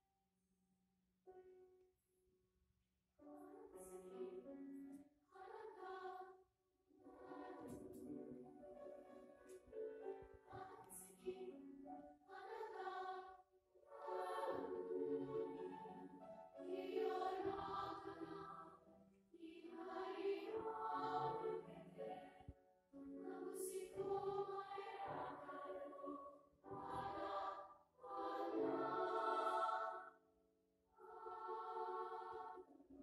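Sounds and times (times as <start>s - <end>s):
large choir singing: 5.3s - 6.4s, 7.0s - 8.6s, 10.2s - 11.6s, 12.3s - 18.8s, 19.4s - 22.5s, 23.1s - 30.2s, 31.0s - 32.9s.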